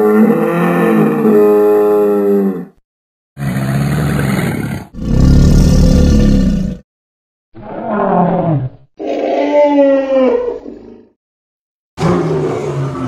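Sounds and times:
dinosaur roar: 0.0 - 2.8, 3.4 - 6.8, 7.6 - 11.1, 12.0 - 13.0.

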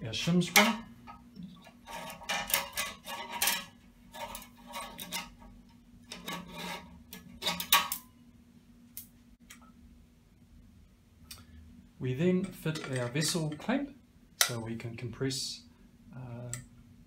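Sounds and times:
metal spring scraping and clinking: 0.3 - 8.1, 12.4 - 13.8.

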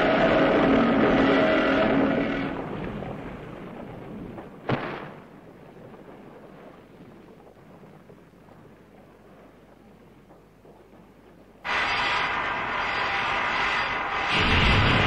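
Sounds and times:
giant monster rumbling crash: 12.6 - 15.0.

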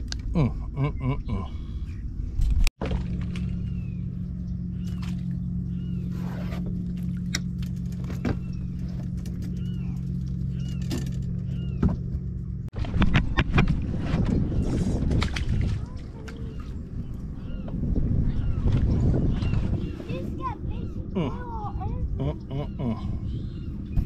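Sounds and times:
engine running steadily: 0.0 - 24.0
bird chirps: 3.4 - 6.6, 8.0 - 12.1.

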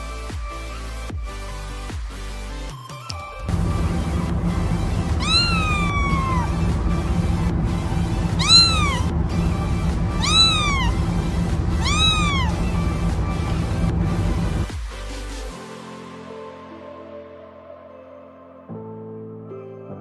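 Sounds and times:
background music: 0.0 - 20.0
kitten meowing: 5.1 - 7.1, 8.0 - 13.2.

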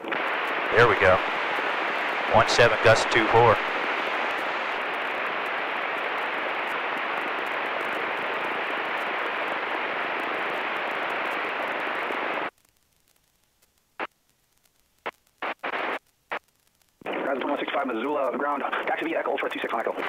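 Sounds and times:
radio static hiss: 0.0 - 20.0.

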